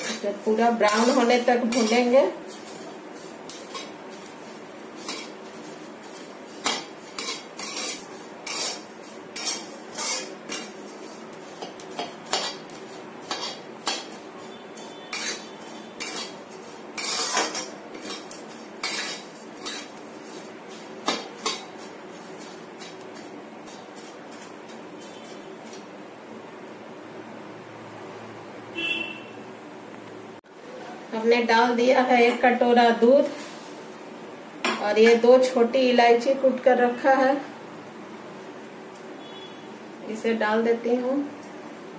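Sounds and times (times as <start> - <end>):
metal spatula scraping a wok: 0.0 - 25.8.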